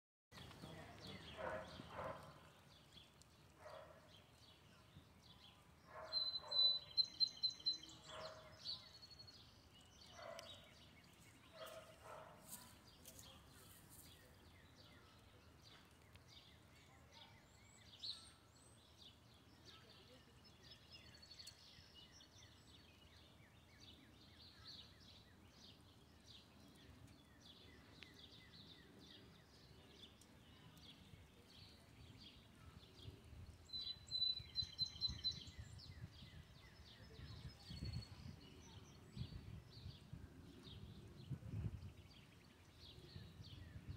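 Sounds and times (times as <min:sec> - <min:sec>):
birds chirping and singing: 0:00.4 - 0:43.9.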